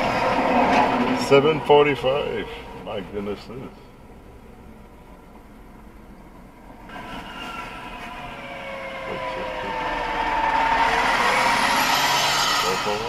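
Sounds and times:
fire truck engine and tyres: 0:00.0 - 0:13.0
whining siren tones: 0:06.9 - 0:13.0.

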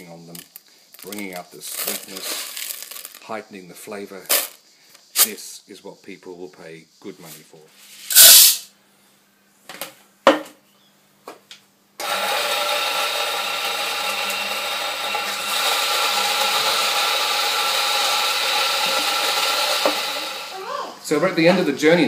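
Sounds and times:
coffee beans clattering into hopper: 0:00.3 - 0:03.3, 0:08.1 - 0:08.6, 0:12.0 - 0:20.5
coffee grinder motor running: 0:12.0 - 0:20.6.

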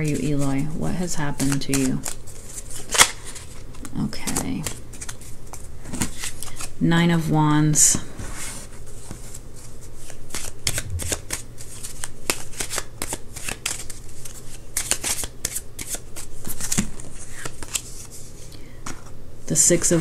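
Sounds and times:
cards being shuffled: 0:01.4 - 0:03.1, 0:12.3 - 0:18.1.

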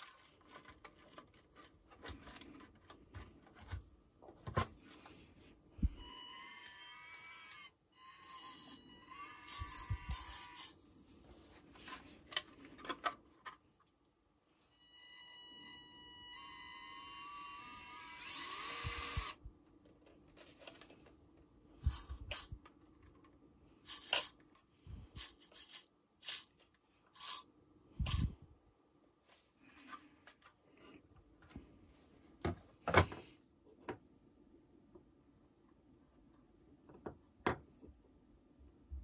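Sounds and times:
toy truck motor whining: 0:06.2 - 0:10.8, 0:16.3 - 0:19.4, 0:21.8 - 0:22.6, 0:23.9 - 0:24.4, 0:25.2 - 0:26.5, 0:27.2 - 0:27.5.

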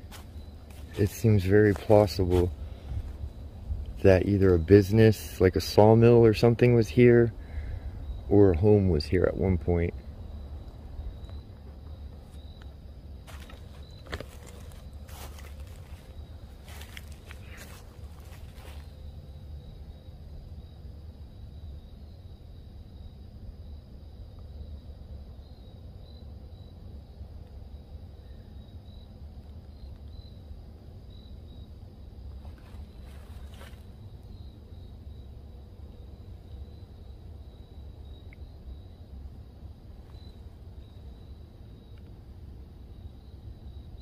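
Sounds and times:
footsteps crunching on dry leaves: 0:00.0 - 0:03.3, 0:13.3 - 0:19.0, 0:32.4 - 0:33.9
crickets trilling: 0:00.0 - 0:44.0
low steady rumble: 0:00.0 - 0:44.0.

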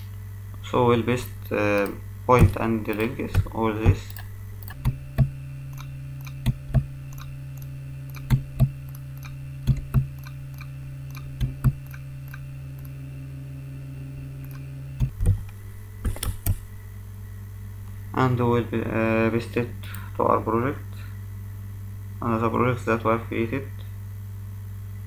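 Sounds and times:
low electrical hum: 0:00.0 - 0:25.0
computer mouse clicking: 0:01.2 - 0:13.0, 0:14.4 - 0:16.7.

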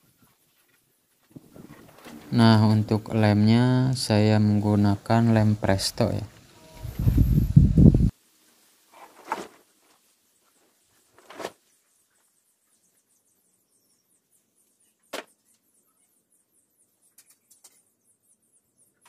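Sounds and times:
wooden boards scuffing and knocking: 0:09.0 - 0:09.6.

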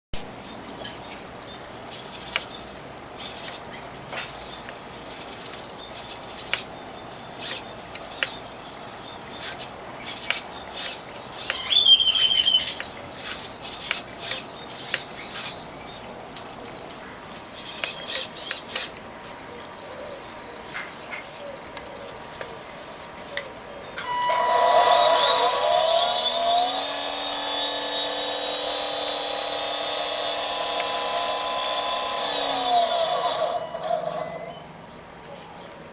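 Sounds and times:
servo chirp: 0:09.4 - 0:15.6, 0:24.0 - 0:34.7
electric motor and propeller whine: 0:24.0 - 0:34.7
servo clicks: 0:24.3 - 0:34.6.

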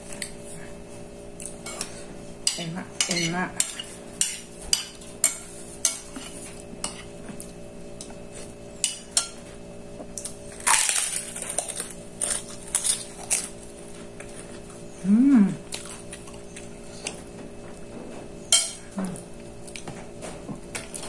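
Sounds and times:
crunch: 0:10.2 - 0:14.7.

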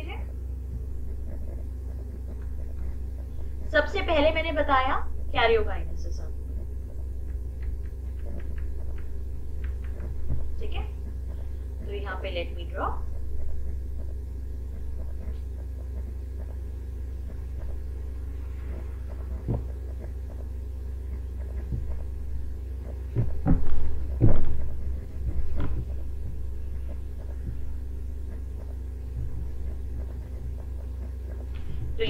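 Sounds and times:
low electrical hum: 0:00.0 - 0:32.0.

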